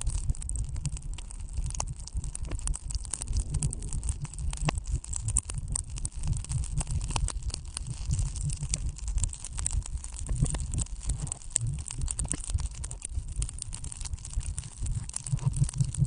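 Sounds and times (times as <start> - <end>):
low thuds: 3.2 - 4.8.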